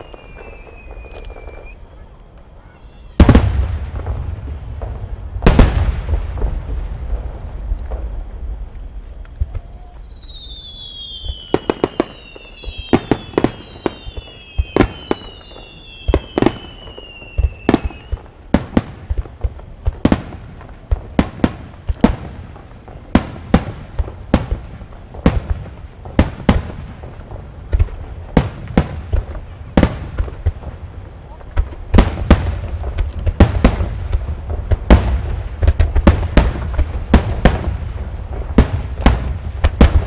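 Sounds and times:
falling firework whistles: 0:00.0 - 0:04.8, 0:07.4 - 0:20.2.

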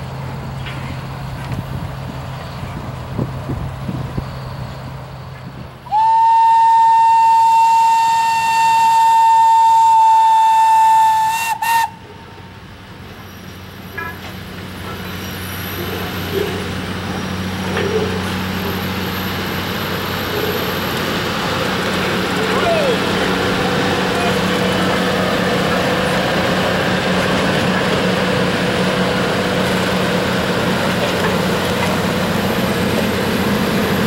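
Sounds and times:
train rolling over crossing: 0:00.0 - 0:34.0
train whistle blowing: 0:05.9 - 0:12.1.

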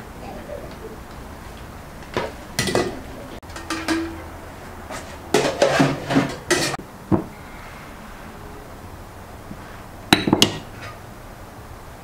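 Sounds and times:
cooking pot knocks and scrapes: 0:02.2 - 0:04.2, 0:04.9 - 0:07.3.

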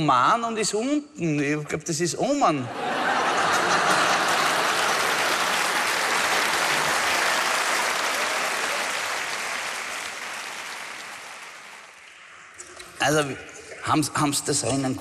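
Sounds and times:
audience applauding: 0:02.9 - 0:12.1.

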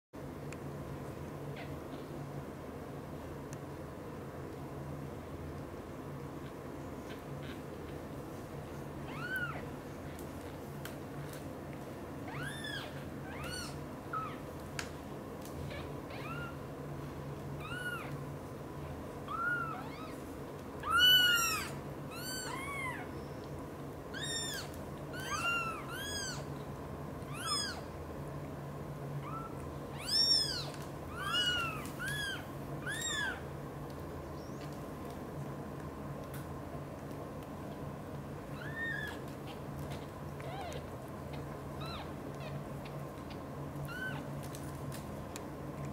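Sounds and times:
kittens mewing: 0:20.8 - 0:23.2, 0:24.2 - 0:26.5, 0:27.3 - 0:27.9, 0:29.2 - 0:33.4, 0:38.5 - 0:43.0.

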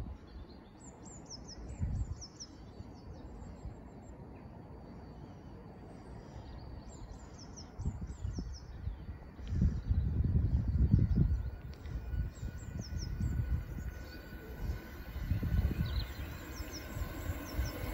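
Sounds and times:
low outdoor rumble: 0:00.0 - 0:17.9
songbird chirping: 0:00.0 - 0:17.9.

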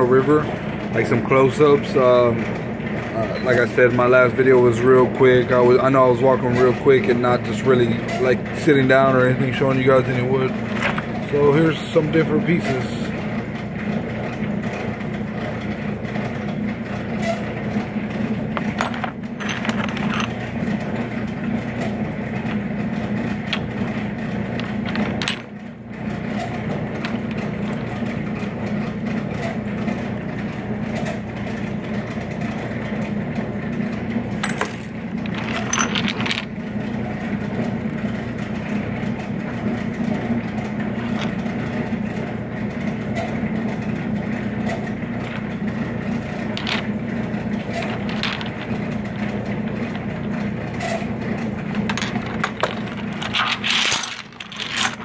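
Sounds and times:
low background hum: 0:00.0 - 0:55.0
stones clinking together: 0:18.6 - 0:20.4, 0:51.8 - 0:55.0.

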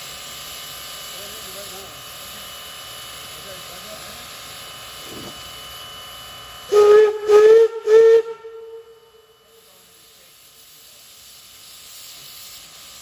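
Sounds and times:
steam hissing: 0:00.0 - 0:13.0
steam whistle blasts: 0:06.7 - 0:09.8.

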